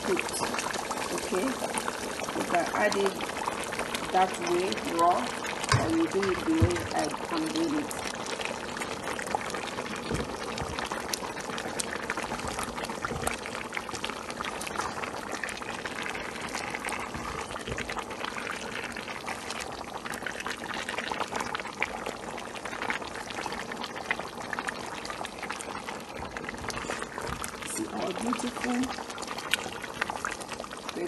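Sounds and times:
thick sauce bubbling: 0:00.0 - 0:31.0
wooden spatula stirring: 0:05.7 - 0:07.7, 0:11.7 - 0:13.7, 0:14.5 - 0:19.6, 0:26.2 - 0:30.4.

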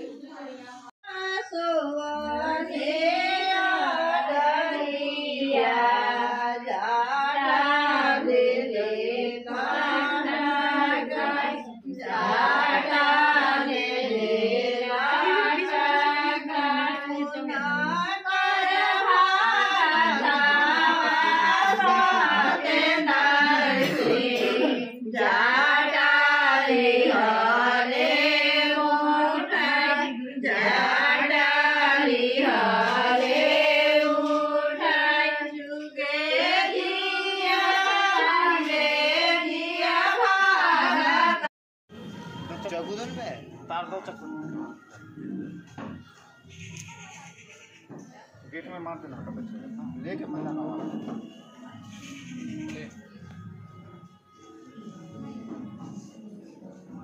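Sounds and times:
women singing unaccompanied: 0:01.0 - 0:41.5.

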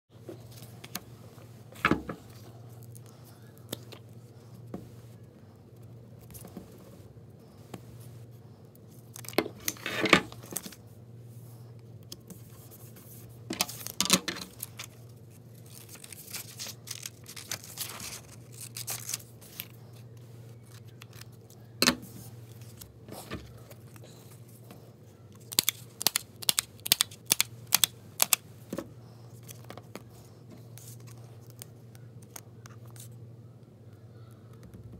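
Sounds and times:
steady low hum: 0:00.1 - 0:34.9
paper rustling on table: 0:12.3 - 0:24.2.

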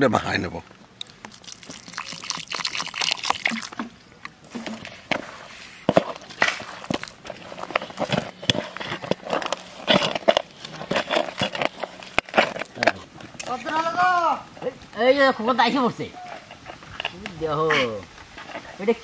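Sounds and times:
water trickling: 0:01.0 - 0:04.3
dough squishing and crumbling: 0:01.0 - 0:14.2
fingers scraping metal bowl: 0:04.6 - 0:13.8, 0:16.2 - 0:18.9.

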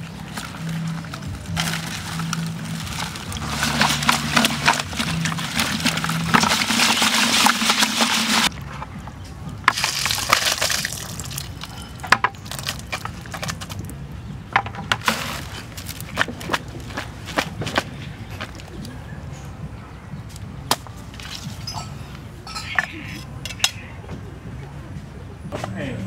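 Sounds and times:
wet crackling and scraping: 0:00.0 - 0:19.0, 0:20.3 - 0:23.7.

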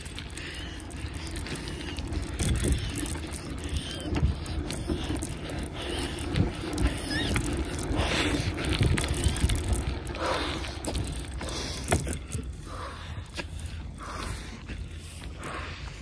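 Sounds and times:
bicycle tyre rumble: 0:00.0 - 0:16.0
wind on microphone: 0:01.3 - 0:12.1.

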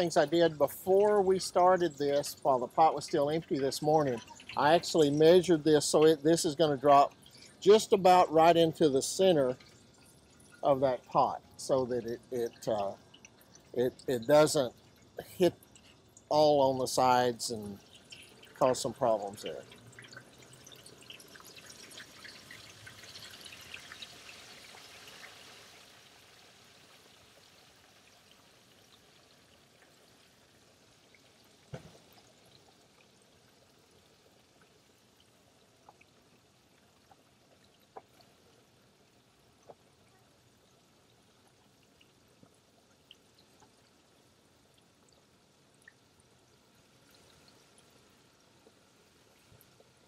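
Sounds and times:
turkey sizzling in hot oil: 0:00.0 - 0:35.1.

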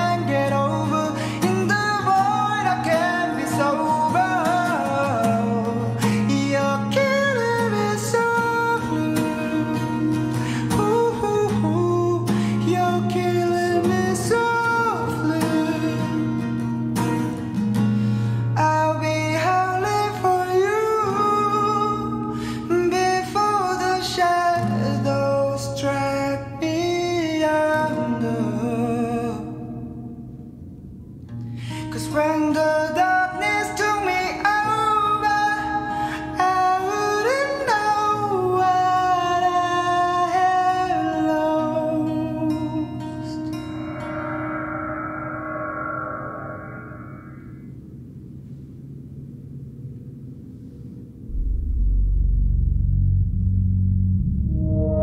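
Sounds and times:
man singing: 0:00.0 - 0:16.6, 0:18.5 - 0:30.0, 0:31.7 - 0:44.6
acoustic guitar: 0:00.0 - 0:48.6.

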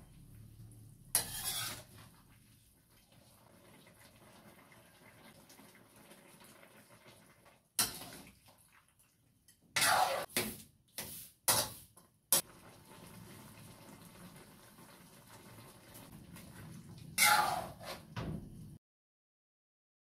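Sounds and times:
spatula scraping metal wok: 0:01.1 - 0:02.1, 0:07.8 - 0:08.2, 0:09.8 - 0:11.8, 0:17.2 - 0:18.1.

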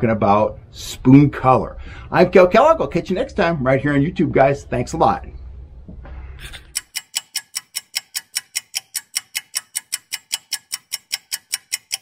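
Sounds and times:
clock-like ticking: 0:06.6 - 0:12.0.

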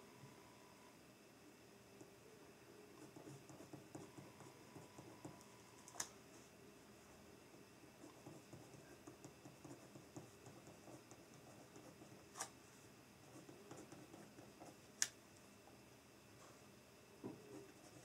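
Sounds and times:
pen scratching on paper: 0:03.0 - 0:05.4, 0:08.0 - 0:12.2.

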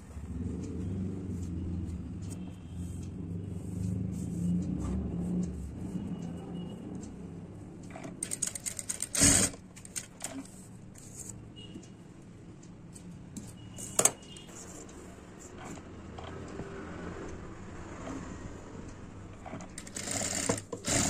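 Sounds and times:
sewing machine running: 0:08.2 - 0:09.6, 0:19.4 - 0:21.0.

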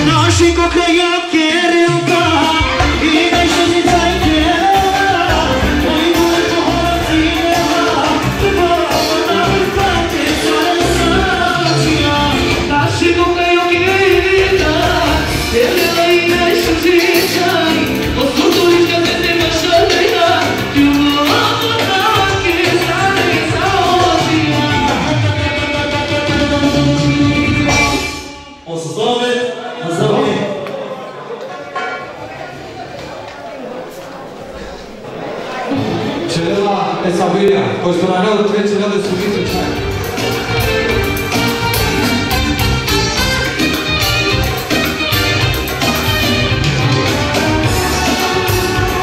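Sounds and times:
man singing into a microphone: 0:00.0 - 0:30.5, 0:46.1 - 0:49.0
amplified dance band: 0:00.0 - 0:32.9, 0:35.7 - 0:49.0.

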